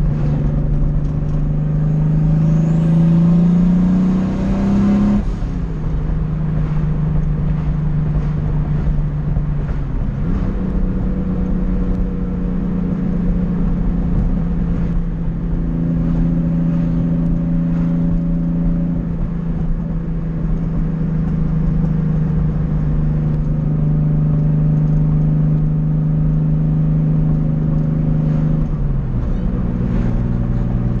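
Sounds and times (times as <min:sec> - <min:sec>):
car engine cruising: 0:00.0 - 0:31.0.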